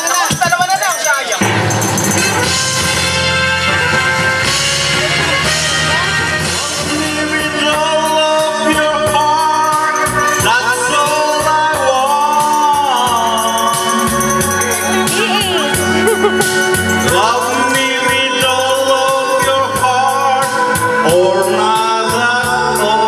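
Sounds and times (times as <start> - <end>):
shaker-like percussion beat: 0.0 - 7.0, 8.7 - 20.5
amplified backing music: 0.1 - 23.0
man singing into a microphone: 6.7 - 23.0.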